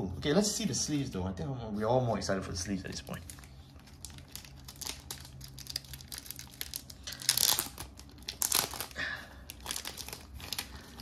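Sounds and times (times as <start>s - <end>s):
plastic packaging crinkling: 2.8s - 11.0s.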